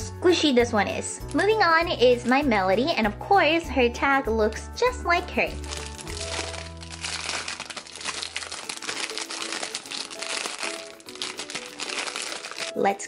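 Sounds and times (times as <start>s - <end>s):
plastic bag crinkling: 5.5s - 12.8s.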